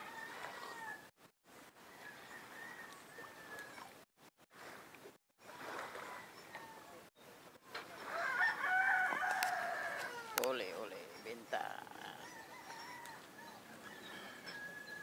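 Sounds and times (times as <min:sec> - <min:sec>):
rooster crowing: 0:02.1 - 0:03.9, 0:08.0 - 0:10.4, 0:12.2 - 0:15.0.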